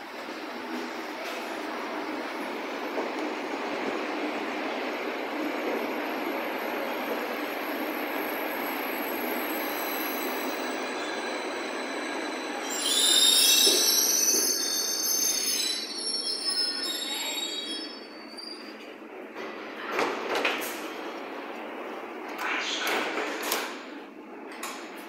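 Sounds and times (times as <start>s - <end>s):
train wheels squealing: 8.6s - 18.9s.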